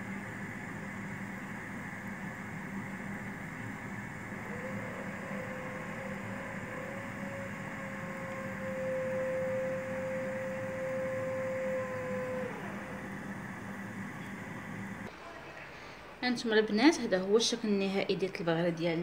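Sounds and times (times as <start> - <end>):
machine hum with whirring hiss: 0.0 - 15.2.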